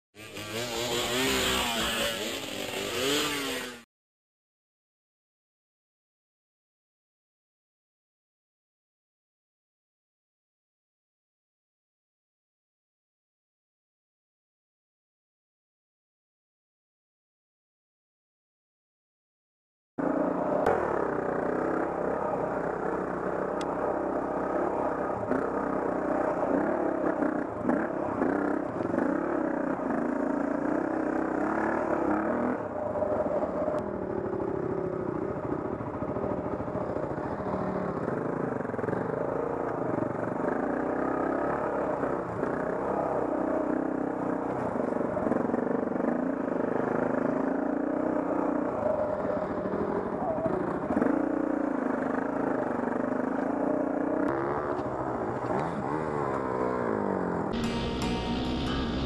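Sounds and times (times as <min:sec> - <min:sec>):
dirt bike engine revving: 0:00.2 - 0:03.9, 0:20.0 - 0:59.0.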